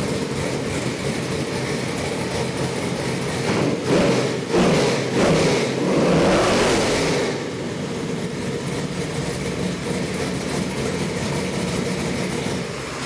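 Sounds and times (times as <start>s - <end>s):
engine revving and idling: 0.0s - 13.0s.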